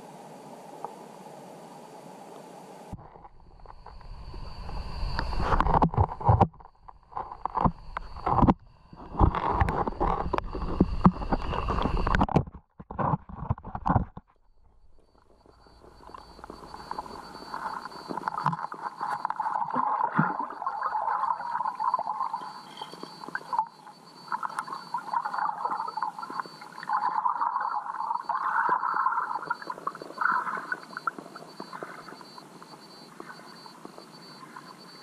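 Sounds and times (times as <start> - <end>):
muffled underwater river rushing: 0.0 - 35.0
faint steady high tone: 14.4 - 35.0.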